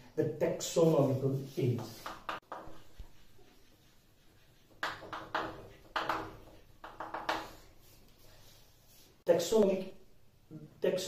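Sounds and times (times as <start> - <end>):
chalk scratching on chalkboard: 0.7 - 9.3.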